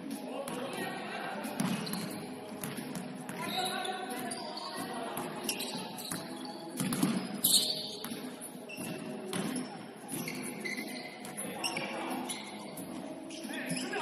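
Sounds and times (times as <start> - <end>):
players' voices: 0.0 - 14.0
basketball bouncing on court: 1.6 - 3.5, 6.1 - 7.3.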